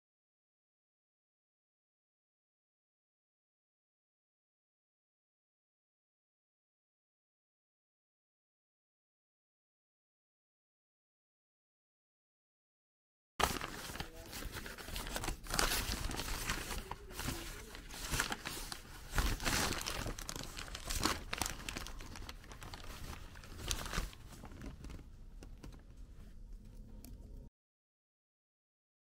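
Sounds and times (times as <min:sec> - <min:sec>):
paper bag crinkling: 0:13.4 - 0:26.0.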